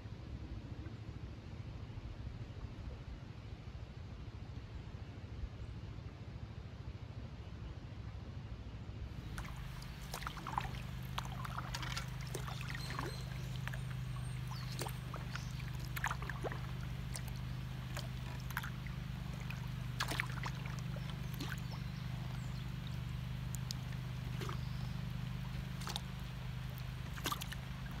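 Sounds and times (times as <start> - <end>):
paddle splashing water: 9.2 - 28.0
steady low rumble: 9.2 - 28.0.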